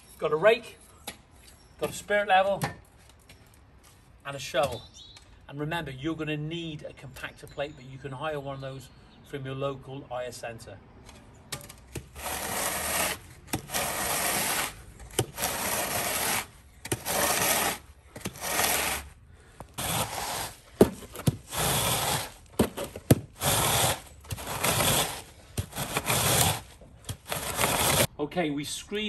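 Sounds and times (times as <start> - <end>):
board scraping across sand: 12.1 - 19.1, 19.8 - 28.1.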